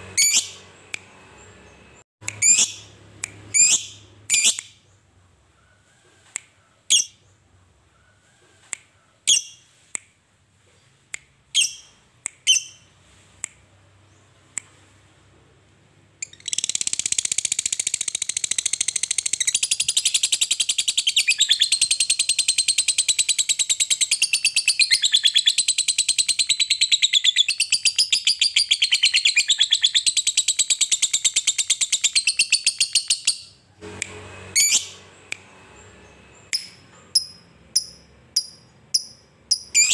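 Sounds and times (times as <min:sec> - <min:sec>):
bird chirping: 0:00.0 - 0:09.8, 0:10.7 - 0:13.0, 0:15.4 - 0:33.7, 0:34.6 - 0:39.9.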